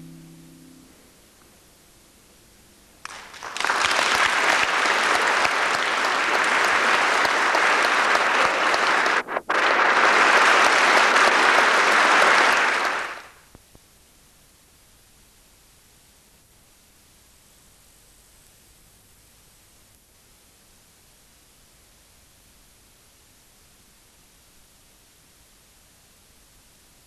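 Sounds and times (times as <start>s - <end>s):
audience applauding: 3.0s - 13.4s.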